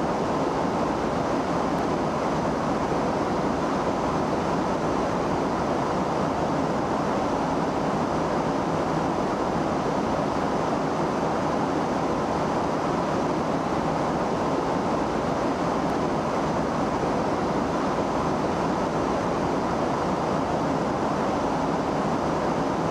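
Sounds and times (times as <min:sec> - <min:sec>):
aircraft drone in flight: 0:00.0 - 0:22.9.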